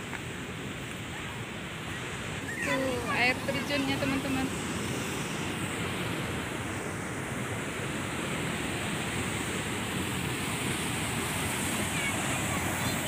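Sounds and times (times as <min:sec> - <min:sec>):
spillway water pouring and splashing: 0:08.0 - 0:13.0.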